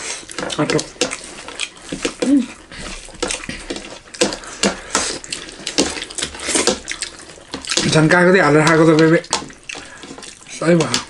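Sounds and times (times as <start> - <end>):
wet chewing and lip smacks: 0.0 - 11.0
person humming: 2.2 - 2.6.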